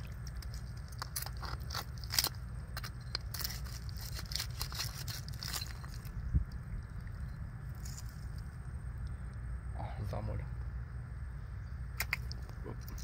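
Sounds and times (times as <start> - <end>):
low steady rumble: 0.0 - 13.0
metal hook scraping on shell: 0.2 - 6.2.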